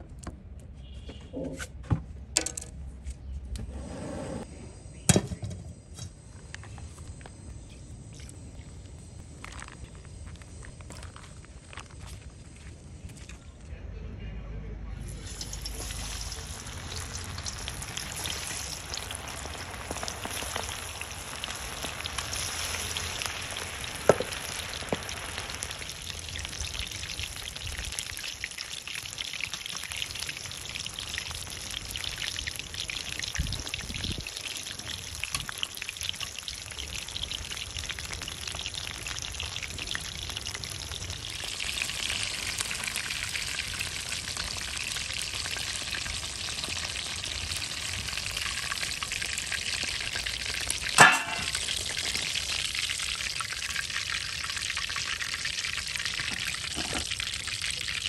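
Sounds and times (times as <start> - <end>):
chicken frying in hot oil: 15.0 - 58.0.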